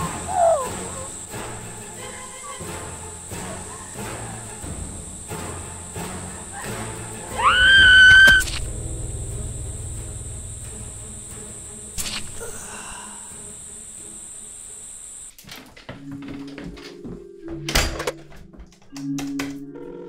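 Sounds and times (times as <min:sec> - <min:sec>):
insects chirring: 0:00.0 - 0:15.4
sharp click: 0:08.1 - 0:08.7, 0:12.0 - 0:12.4
low rumble: 0:08.5 - 0:12.6.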